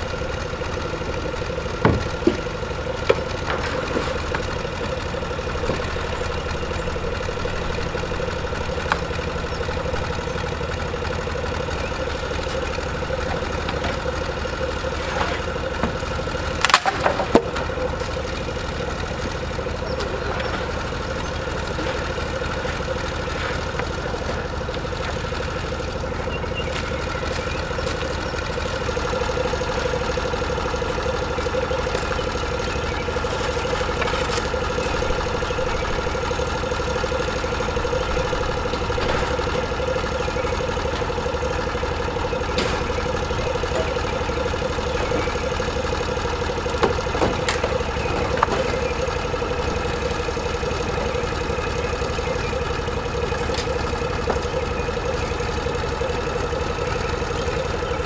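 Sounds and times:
small engine idling: 0.0 - 58.0
wooden knocks on ramps: 1.7 - 4.4.

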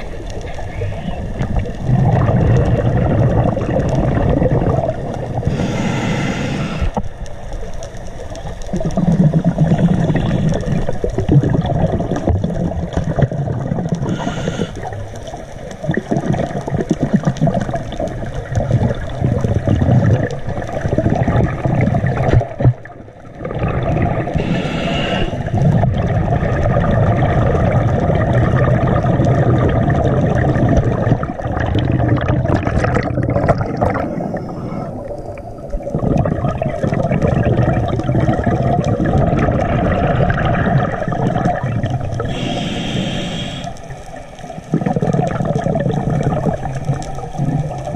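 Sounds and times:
rumble of exhaust bubbles: 0.0 - 5.8, 8.6 - 14.2, 15.7 - 24.5, 25.4 - 42.4, 44.6 - 47.9
regulator hissing inhalations: 5.4 - 7.0, 14.0 - 15.0, 24.4 - 25.6, 42.3 - 43.9.

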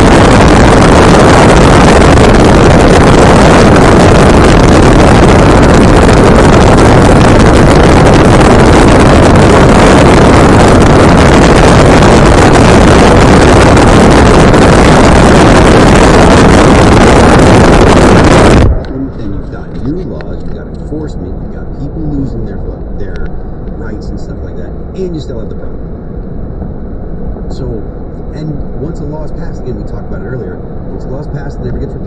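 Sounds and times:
wind buffeting microphone: 0.0 - 20.7
vehicle running noise: 0.0 - 32.0.

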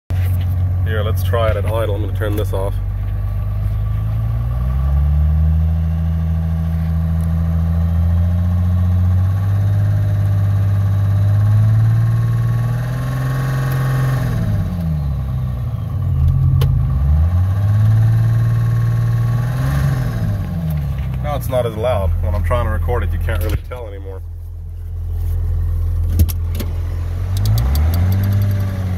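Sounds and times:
diesel engine running: 0.1 - 28.9
sharp click: 27.3 - 28.7.

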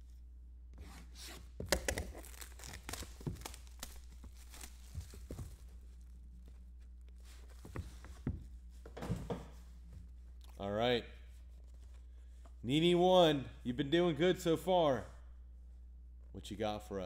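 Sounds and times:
plastic shrink wrap tearing: 1.7 - 5.5.

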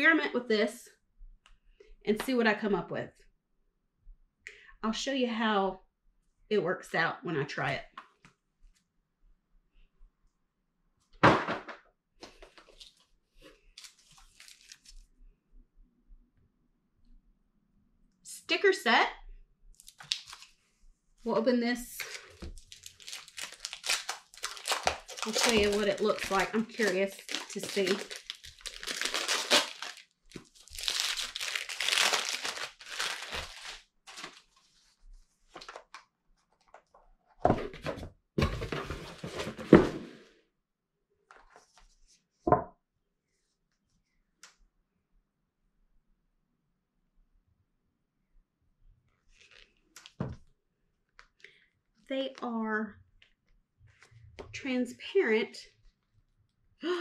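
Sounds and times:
packaging crinkling and rustling: 12.2 - 15.1, 19.8 - 20.6, 22.0 - 36.0.

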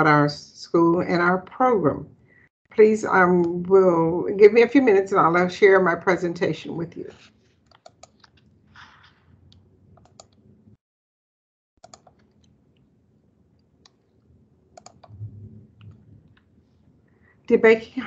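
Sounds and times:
mouse and keyboard clicks: 7.7 - 10.4, 11.8 - 12.6, 14.8 - 15.2.

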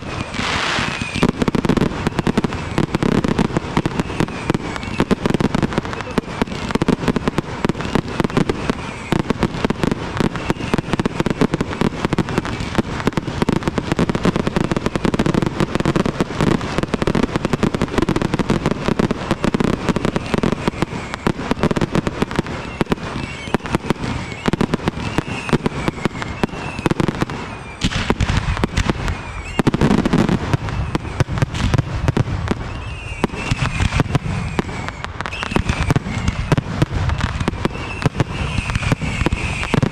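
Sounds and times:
fireworks launches and bangs: 0.0 - 39.9.

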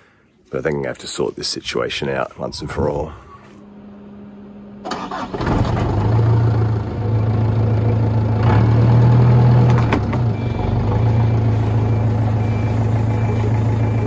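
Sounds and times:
truck engine starting and idling: 2.9 - 14.0.

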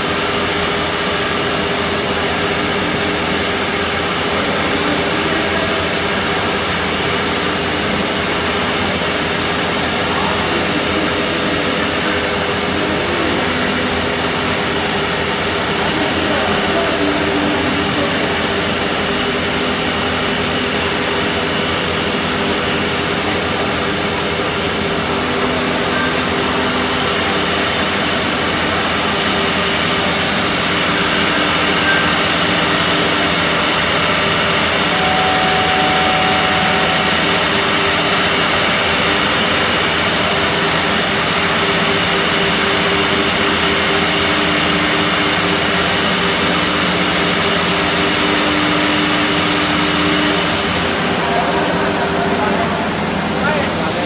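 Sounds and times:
machine spindles whining: 0.0 - 54.0.

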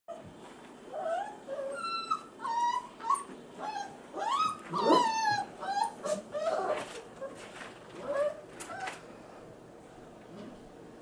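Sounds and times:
puppies whimpering and crying: 0.9 - 9.0.

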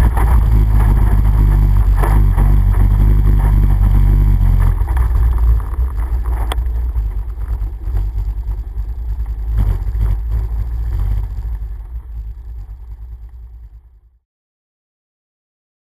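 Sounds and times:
wind buffeting microphone: 0.0 - 11.9
all-terrain vehicle engine rumble: 0.0 - 14.2.

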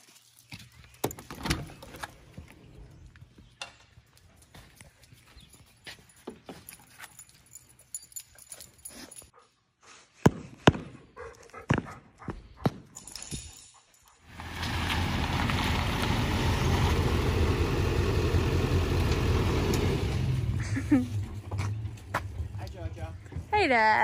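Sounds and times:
dog moving on concrete floor: 0.0 - 9.5.

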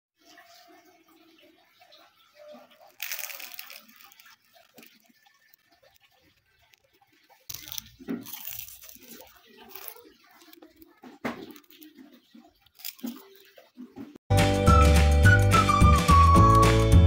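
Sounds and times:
light crinkling: 1.9 - 14.0
crisp fried wrapper cracking: 2.8 - 12.0.

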